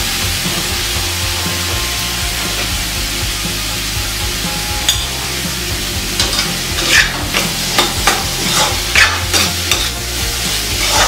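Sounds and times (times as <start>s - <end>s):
curry frying: 0.0s - 11.0s
metal spatula scraping metal pan: 6.1s - 11.0s.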